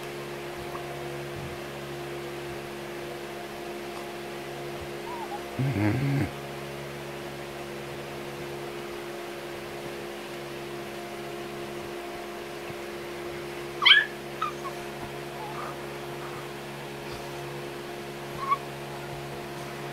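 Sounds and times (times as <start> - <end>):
steady hum: 0.0 - 19.9
puppy yelping: 4.9 - 6.2, 13.8 - 17.2, 18.3 - 18.7
puppy squeaks: 5.0 - 5.4, 13.8 - 15.8, 18.4 - 18.6.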